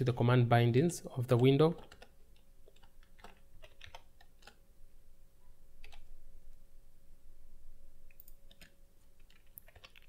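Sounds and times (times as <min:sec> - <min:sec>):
faint steady hum: 0:00.0 - 0:10.0
computer keyboard keystrokes: 0:01.4 - 0:04.6, 0:05.8 - 0:06.1, 0:08.1 - 0:10.0.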